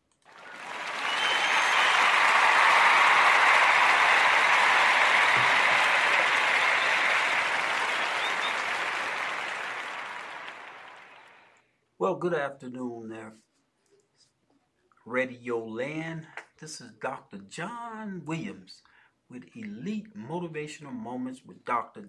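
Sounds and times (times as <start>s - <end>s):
audience applause: 0.2s - 11.5s.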